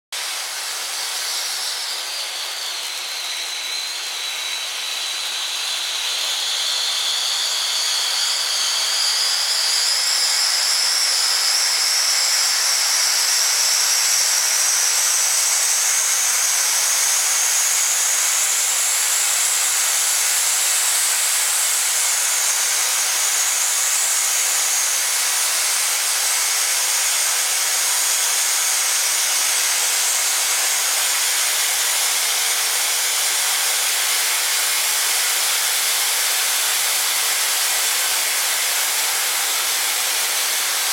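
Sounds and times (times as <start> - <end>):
firework fountain hissing: 9.2 - 40.9.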